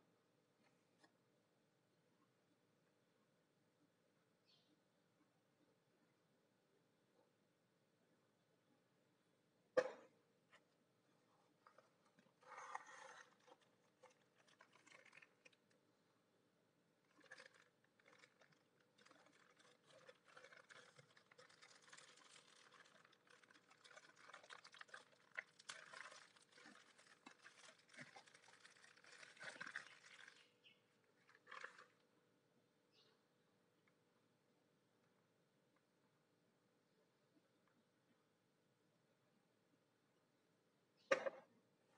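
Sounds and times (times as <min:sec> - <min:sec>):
paper crinkling: 0:11.6 - 0:15.7, 0:17.1 - 0:30.5, 0:31.2 - 0:32.0
plastic bag crinkling: 0:12.4 - 0:15.7, 0:17.1 - 0:30.5, 0:31.2 - 0:32.0.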